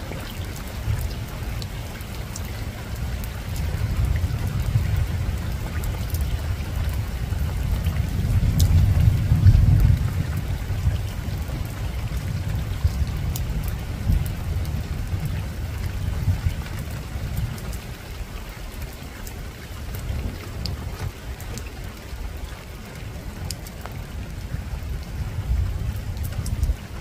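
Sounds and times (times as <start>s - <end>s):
deep continuous rumble: 0.0s - 18.1s
rain on a rooftop: 0.0s - 27.0s
sharp drips: 0.0s - 27.0s.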